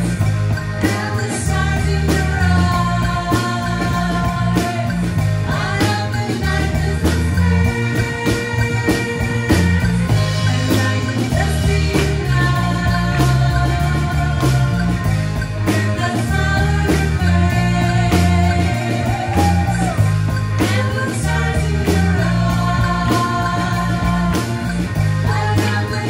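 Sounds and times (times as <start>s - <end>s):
accordion: 0.0s - 26.0s
drum kit beat: 0.0s - 26.0s
electric bass line: 0.0s - 26.0s
woman singing: 25.2s - 26.0s.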